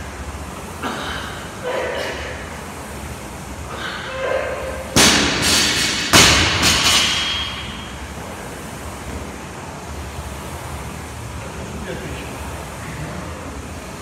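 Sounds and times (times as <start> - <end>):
barbell crashing on rubber floor: 4.9 - 7.9.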